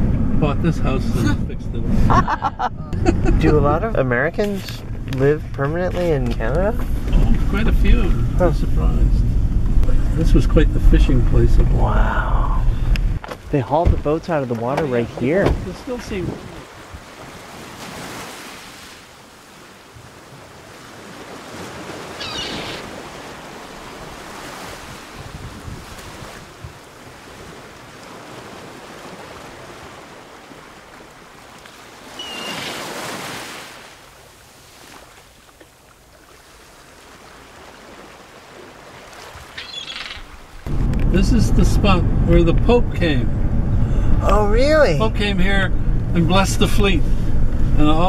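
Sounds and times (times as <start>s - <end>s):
wind buffeting microphone: 4.6s - 18.2s, 19.9s - 31.3s, 37.6s - 48.0s
sea washing against rocks: 14.3s - 40.7s.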